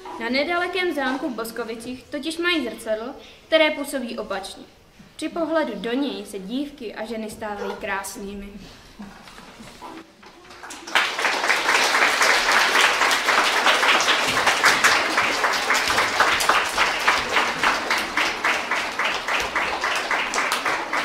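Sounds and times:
audience applauding: 0:10.3 - 0:21.0.

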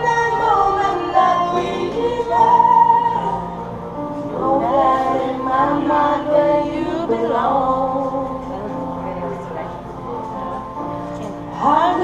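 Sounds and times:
woman singing: 0:00.0 - 0:03.4, 0:11.5 - 0:12.0
backing music: 0:00.0 - 0:12.0.

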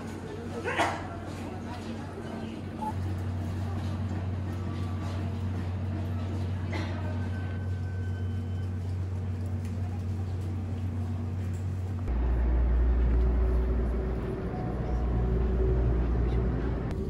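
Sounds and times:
low hum of shop ambience: 0:00.0 - 0:17.0
train cabin drone: 0:00.0 - 0:17.0.

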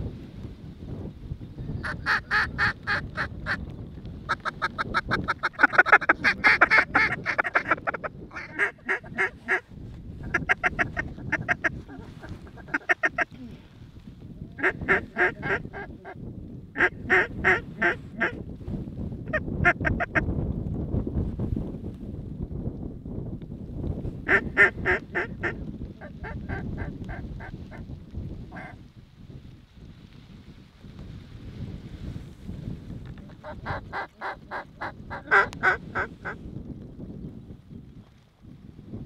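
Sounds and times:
duck quacking: 0:04.4 - 0:09.6, 0:10.2 - 0:13.3, 0:14.6 - 0:16.2, 0:33.3 - 0:36.4.

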